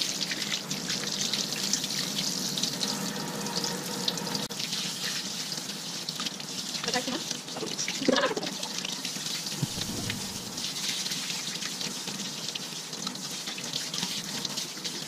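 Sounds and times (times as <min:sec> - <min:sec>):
tap water splashing into sink: 0:09.5 - 0:11.0.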